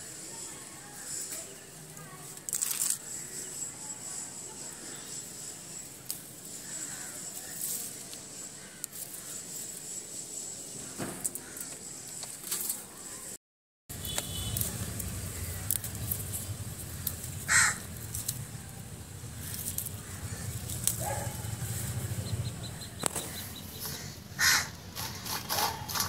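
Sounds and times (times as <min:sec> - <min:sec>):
chillies being picked: 0:01.1 - 0:03.3, 0:06.0 - 0:09.8, 0:13.9 - 0:22.4
crow cawing: 0:06.6 - 0:07.3, 0:16.9 - 0:17.9, 0:23.8 - 0:24.8
low steady rumble: 0:14.6 - 0:24.3.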